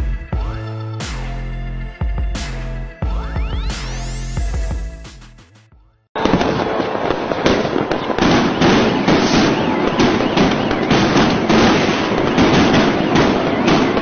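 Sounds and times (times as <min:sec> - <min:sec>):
fireworks cracking and banging: 0:06.2 - 0:14.0.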